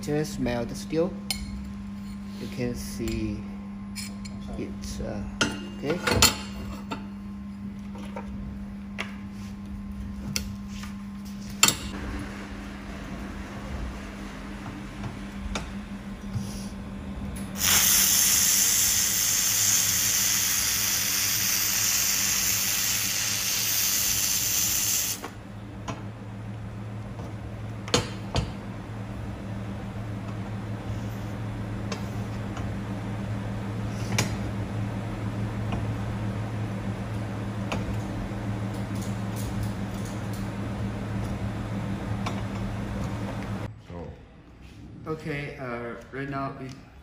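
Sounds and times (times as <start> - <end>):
laser welder hissing: 17.6 - 25.2.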